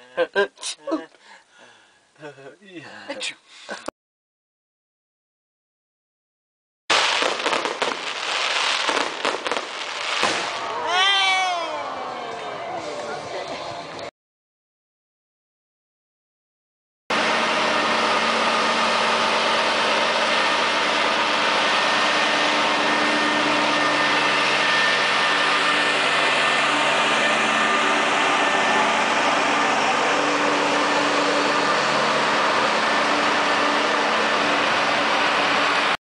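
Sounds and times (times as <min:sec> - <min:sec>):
road traffic: 0:06.9 - 0:14.1, 0:17.1 - 0:36.0
lorry diesel engines running: 0:17.1 - 0:36.0
high falling tone: 0:17.2 - 0:36.0.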